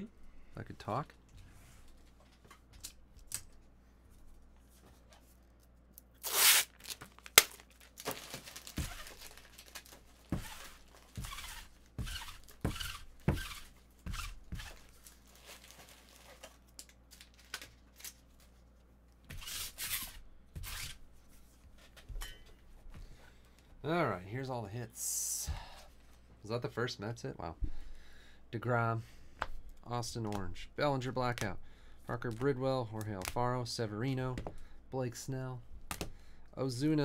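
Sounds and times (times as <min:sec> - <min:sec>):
packaging tearing: 0:06.2 - 0:11.8.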